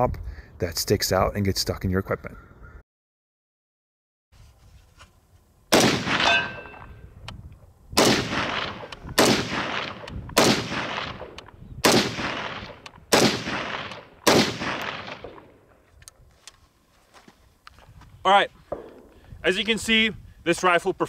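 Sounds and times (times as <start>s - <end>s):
rifle shots with echo: 5.7s - 6.9s, 8.0s - 15.6s
short metallic ring: 6.2s - 7.0s.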